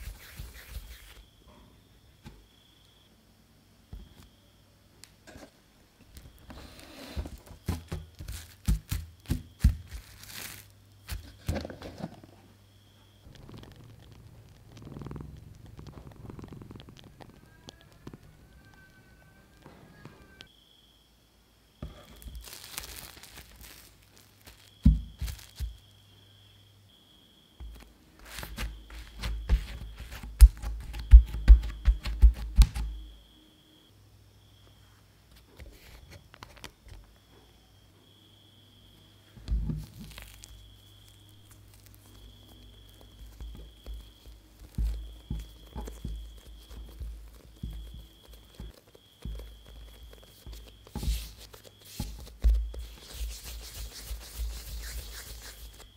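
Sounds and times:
cling film crinkling: 7.3s - 11.5s, 22.2s - 25.8s, 39.7s - 55.9s
hand patting bread dough: 7.3s - 11.7s, 21.8s - 25.8s, 27.6s - 33.1s, 39.4s - 55.9s.

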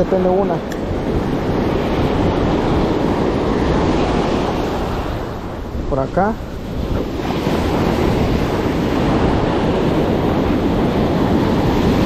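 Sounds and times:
foamy wash rushing over sand: 0.0s - 12.0s
waves breaking on sandy beach: 0.0s - 12.0s.

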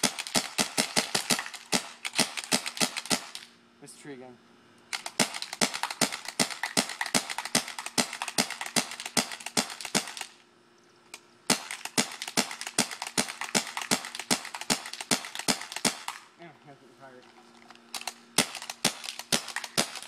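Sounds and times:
paintball marker firing: 0.0s - 3.5s, 4.9s - 10.4s, 11.5s - 16.2s, 18.0s - 20.0s.

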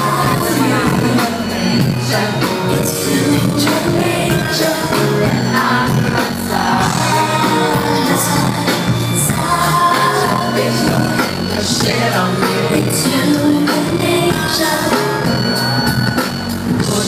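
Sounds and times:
live band playing pop: 0.0s - 17.0s
woman singing into microphone: 6.8s - 11.2s, 11.8s - 15.5s.

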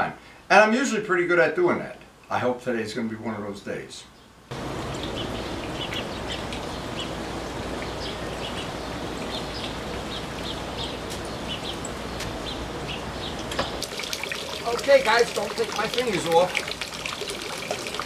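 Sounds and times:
small birds chirping: 4.0s - 16.7s.

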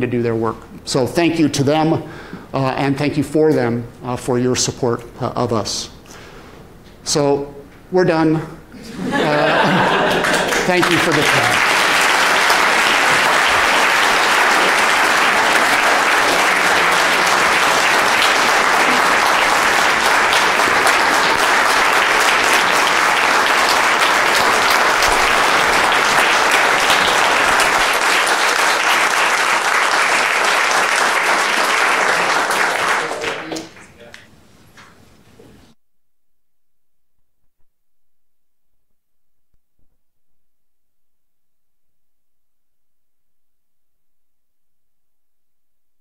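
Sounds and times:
audience applauding: 9.1s - 34.0s.

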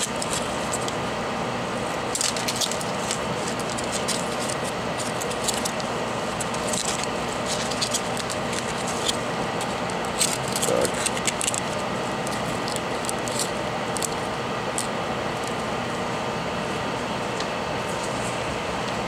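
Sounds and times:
aluminium foil crinkling: 0.0s - 1.0s, 1.8s - 15.7s
hot-air blower hissing: 0.0s - 19.0s.

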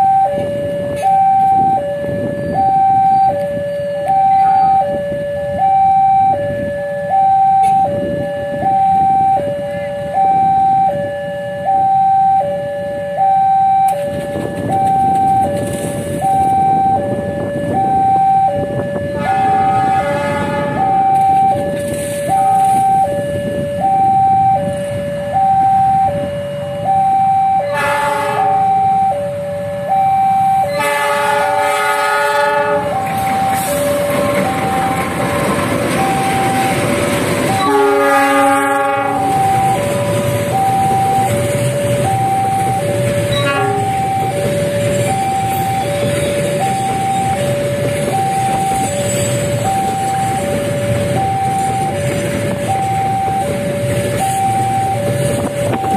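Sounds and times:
freight train rumbling past: 0.0s - 11.9s, 13.8s - 55.9s
two-tone level crossing alarm: 0.0s - 55.9s
locomotive horn blasts: 18.6s - 24.2s, 27.5s - 29.8s, 30.6s - 35.0s, 37.5s - 40.2s, 42.6s - 47.6s.

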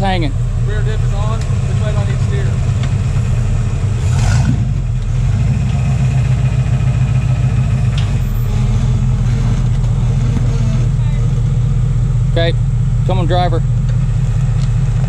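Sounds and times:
engine running at low revs: 0.0s - 15.0s.

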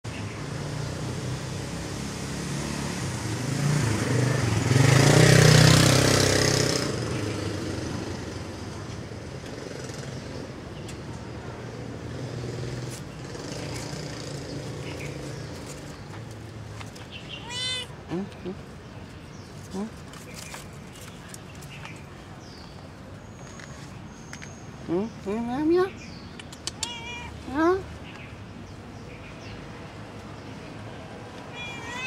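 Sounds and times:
low traffic hum: 0.0s - 32.0s
motor vehicle passing: 0.4s - 20.6s.

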